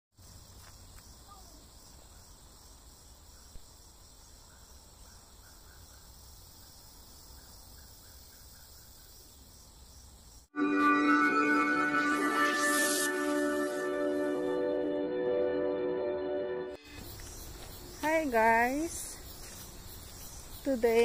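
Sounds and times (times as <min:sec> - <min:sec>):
insects droning: 0:00.2 - 0:10.5, 0:16.8 - 0:21.0.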